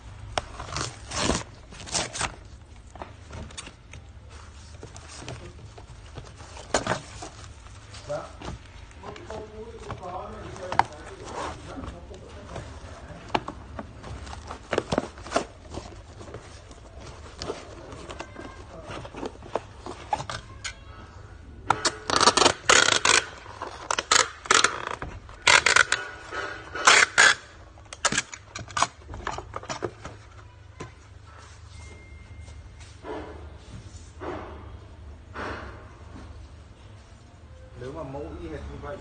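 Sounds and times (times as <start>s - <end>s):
packing tape ripping: 0.4s - 2.6s, 21.7s - 29.7s.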